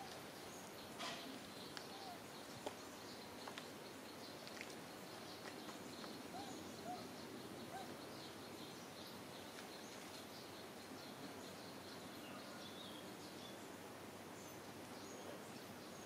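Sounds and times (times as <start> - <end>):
soft arched bird calls: 0.0 - 13.8
small birds chirping: 0.0 - 16.0
steady hiss: 0.0 - 16.0.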